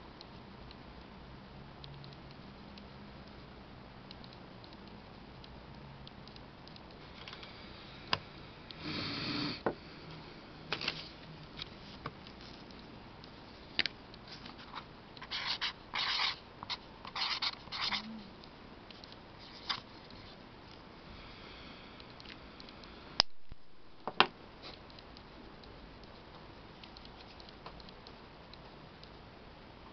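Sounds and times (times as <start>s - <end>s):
marker squeaking on cardboard: 15.2s - 18.1s.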